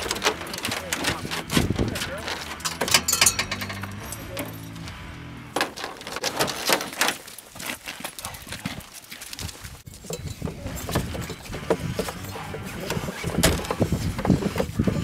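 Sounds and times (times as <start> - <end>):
metal chain leads clinking: 0.0 - 5.0
dog claws clicking on pavement: 5.6 - 9.8.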